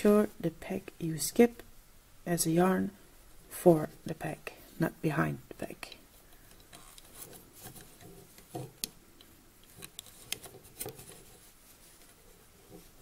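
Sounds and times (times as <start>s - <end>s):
faint clicks of knitting loom: 5.5s - 13.0s
yarn rubbing: 6.6s - 8.9s, 9.6s - 13.0s.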